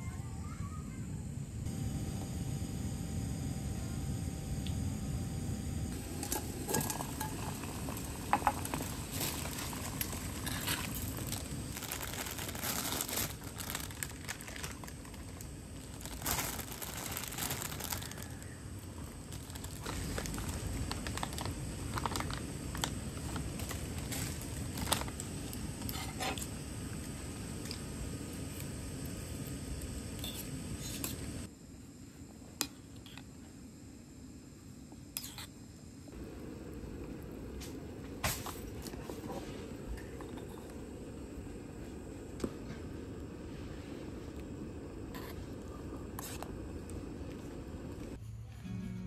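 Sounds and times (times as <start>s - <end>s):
rustling and crinkling: 6.0s - 26.5s
low background rumble: 36.1s - 48.2s.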